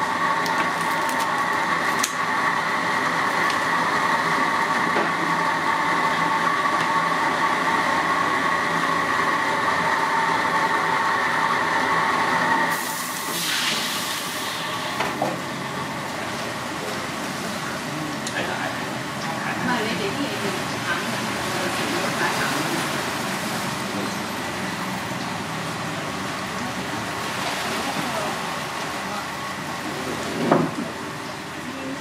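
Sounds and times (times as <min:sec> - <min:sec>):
hiss: 0:12.7 - 0:15.0.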